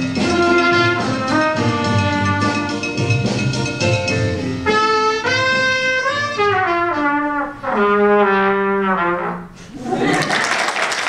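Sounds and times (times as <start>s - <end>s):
trumpet solo melody: 0.0s - 2.9s, 4.6s - 9.6s.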